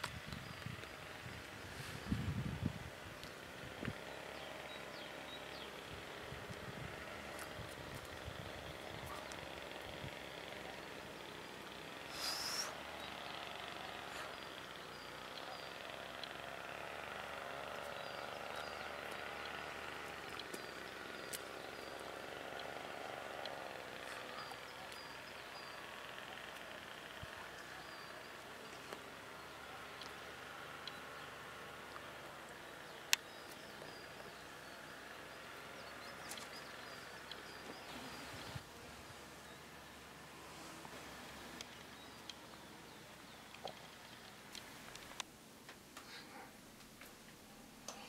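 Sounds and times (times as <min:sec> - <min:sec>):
small bird chirping: 0:03.2 - 0:38.6
background hiss: 0:09.5 - 0:48.0
faint clicks: 0:14.5 - 0:16.4.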